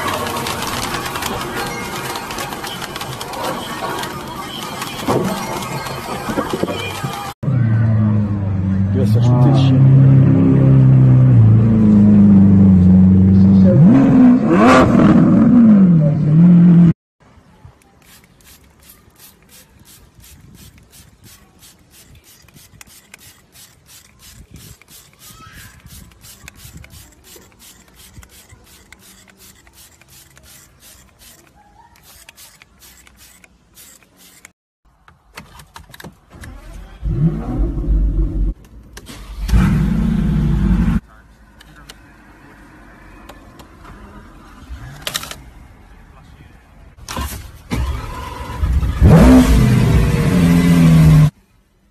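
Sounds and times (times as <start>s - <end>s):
car engine revving: 39.2s - 41.0s, 47.7s - 51.3s.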